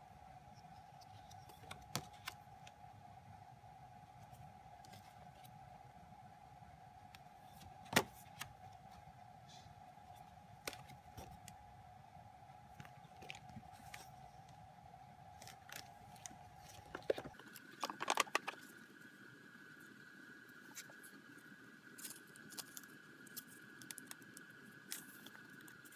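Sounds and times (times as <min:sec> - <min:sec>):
faint steady whine: 0:00.0 - 0:25.9
photo prints rustling: 0:15.3 - 0:18.8.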